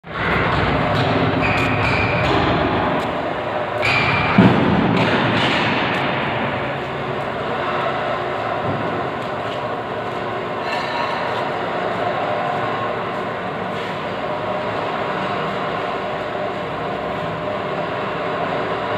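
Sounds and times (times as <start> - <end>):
machine knocks: 0.2 - 6.9
loud thud: 3.8 - 6.8.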